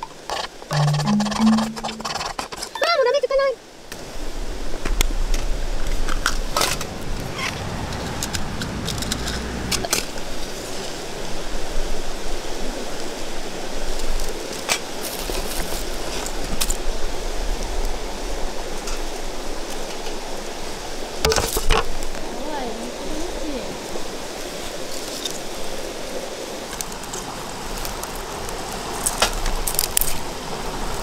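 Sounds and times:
river rushing: 3.6 - 21.2.

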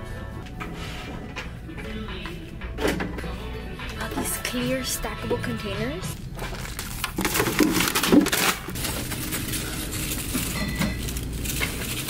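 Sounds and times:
low store hum: 0.0 - 12.0
groceries knocking and rustling: 4.0 - 12.0.

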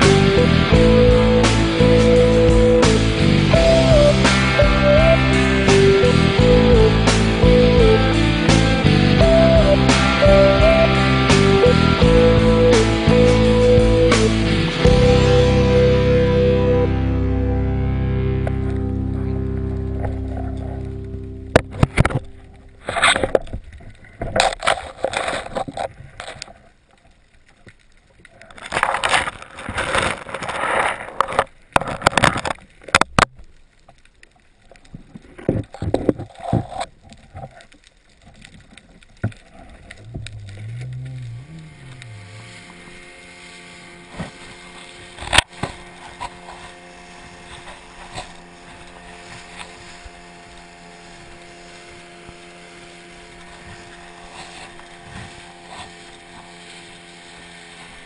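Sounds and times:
motorboat engine: 0.0 - 25.7, 39.2 - 58.0
underwater rushing noise: 0.0 - 58.0.

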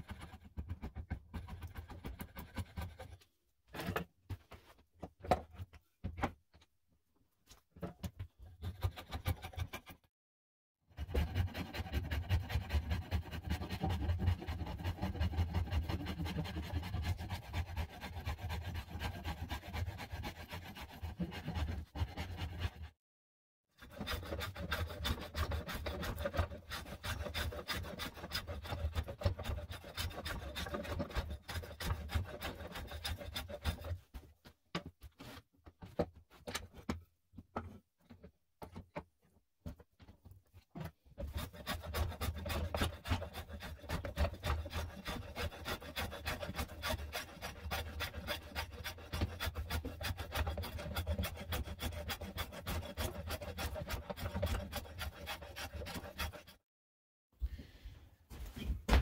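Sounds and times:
rasp filing wooden handle: 0.0 - 3.2, 8.6 - 10.0, 10.9 - 23.0, 23.8 - 34.2, 41.2 - 56.6.

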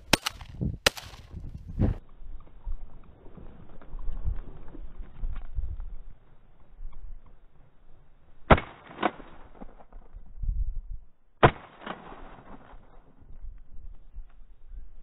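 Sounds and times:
shotgun shots: 0.0 - 1.3, 8.5 - 9.6, 11.4 - 12.7.

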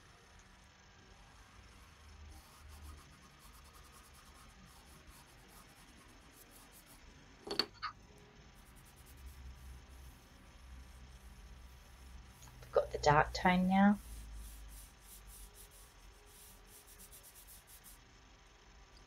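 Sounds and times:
pastel stick rubbing on paper: 2.3 - 7.0, 8.5 - 18.0.

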